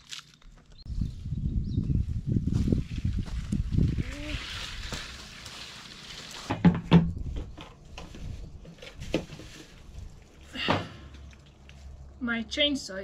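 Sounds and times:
branch dragged over dry leaves: 2.1s - 6.6s, 7.9s - 10.5s
plastic fuel cans handled: 6.4s - 11.8s.

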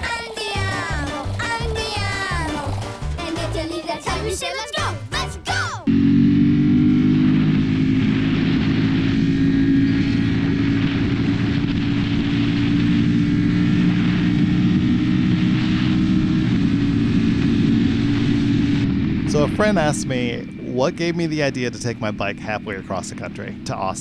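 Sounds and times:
motorcycle engine cruising: 0.0s - 3.6s, 5.8s - 24.0s
wind rush: 7.4s - 24.0s.

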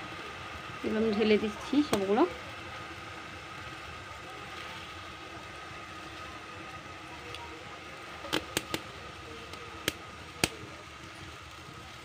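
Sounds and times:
syrup boiling with hiss: 0.0s - 12.0s
sharp clicks: 8.3s - 8.8s.

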